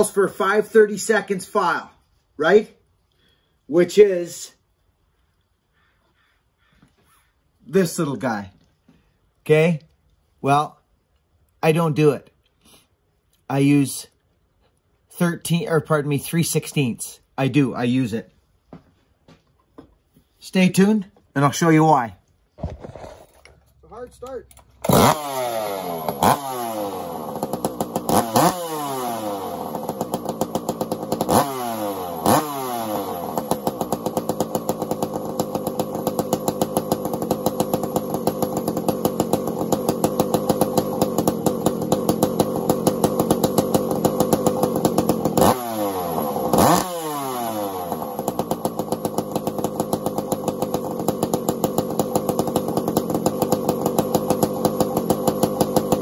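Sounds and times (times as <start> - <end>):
chainsaw revving and idling: 0.0 - 4.6, 11.6 - 18.2, 20.5 - 56.0
chainsaw pull-started: 21.5 - 23.8, 24.4 - 56.0.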